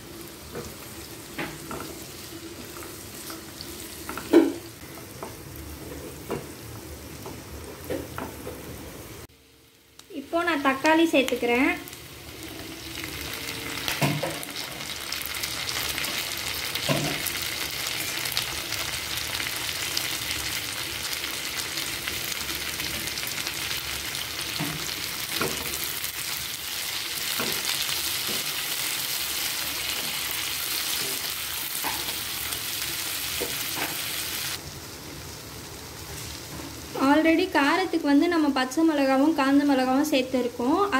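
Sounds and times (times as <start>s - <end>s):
food sizzling in butter: 9.0s - 38.1s.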